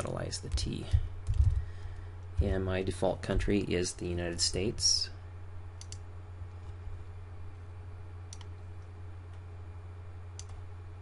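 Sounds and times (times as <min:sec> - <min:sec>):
steady low hum: 0:00.0 - 0:11.0
computer mouse clicks: 0:05.8 - 0:06.0, 0:08.3 - 0:08.6, 0:10.4 - 0:10.6.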